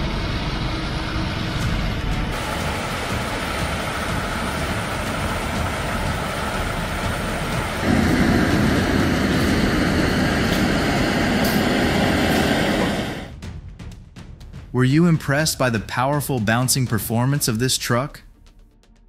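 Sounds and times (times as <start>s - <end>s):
truck engine and tyre noise: 0.4s - 13.3s.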